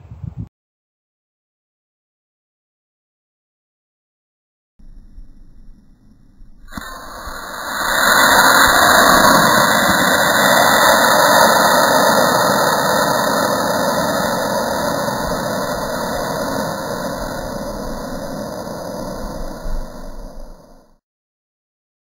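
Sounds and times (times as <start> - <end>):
model rocket motor roaring: 4.8 - 21.0.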